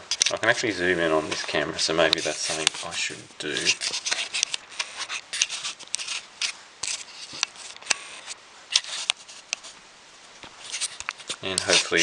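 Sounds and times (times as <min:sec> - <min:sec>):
fingers rubbing on camera: 0:02.1 - 0:09.8, 0:10.6 - 0:12.0
sharp camera clicks: 0:04.0 - 0:09.6.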